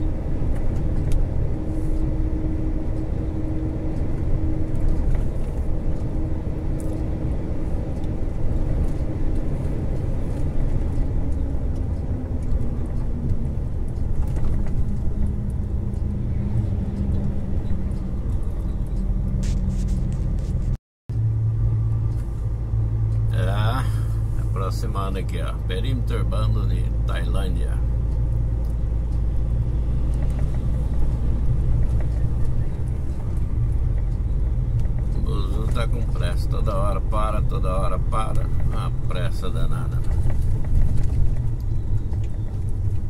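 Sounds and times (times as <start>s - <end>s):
diesel truck engine drone: 0.0s - 43.0s
road rumble: 0.0s - 43.0s.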